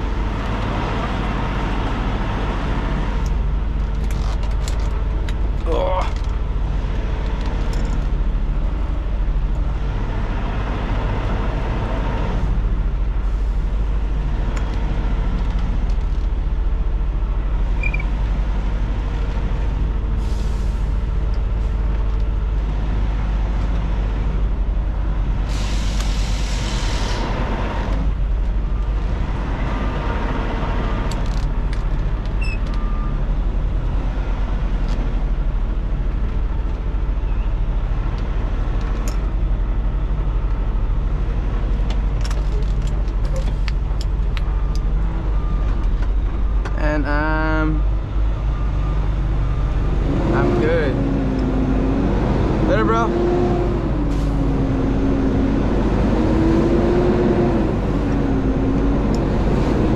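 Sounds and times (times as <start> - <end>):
diesel truck engine rumbling: 0.0 - 59.9
air brake hiss: 20.2 - 20.9, 25.5 - 27.3.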